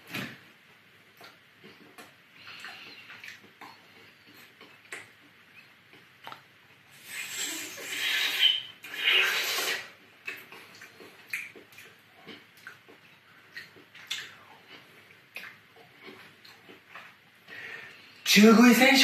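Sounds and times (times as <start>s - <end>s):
person slurping and gobbling: 6.9s - 10.5s.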